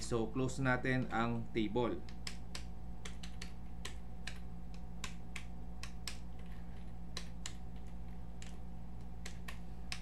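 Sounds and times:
low electrical hum: 0.0 - 10.0
keyboard keystroke clicks: 2.0 - 6.5.

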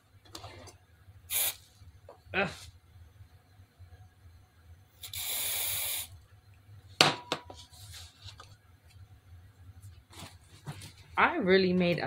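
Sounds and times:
aerosol spray hissing: 1.3 - 1.6, 5.0 - 6.2.

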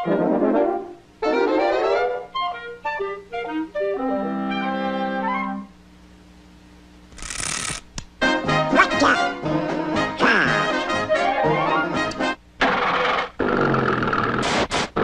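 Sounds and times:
cartoon orchestral music: 0.0 - 5.7, 8.2 - 12.4.

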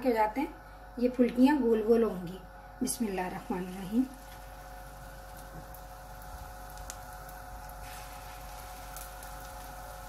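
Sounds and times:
faint steady hum: 0.0 - 10.0
batter sizzling in hot oil: 2.9 - 10.0.

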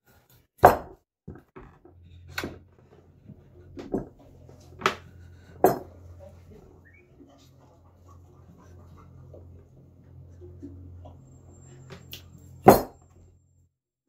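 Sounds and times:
faint low hum: 1.8 - 13.7
hammer striking metal blade: 5.6 - 5.9, 12.1 - 13.0.

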